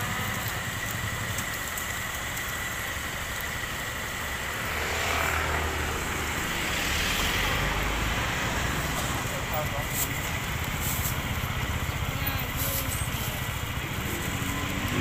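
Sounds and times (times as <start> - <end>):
vehicle engine passing: 3.4 - 15.0.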